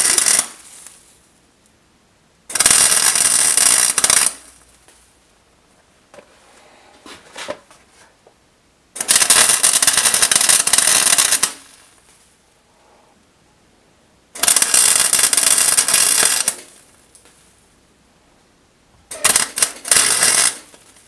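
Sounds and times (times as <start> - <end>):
welder arc crackling: 0.0 - 1.8, 2.5 - 5.1, 8.9 - 12.2, 14.3 - 17.4, 19.1 - 21.0.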